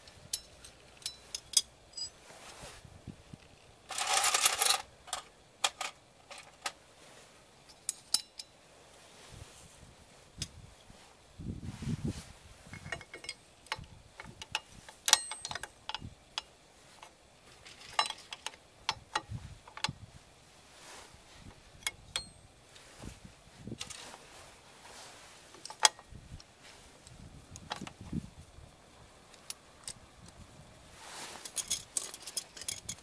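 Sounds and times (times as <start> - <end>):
metal brake parts clinking: 0.1 - 2.2, 7.7 - 8.6, 12.7 - 16.5, 17.5 - 18.6, 21.8 - 22.5, 31.4 - 33.0.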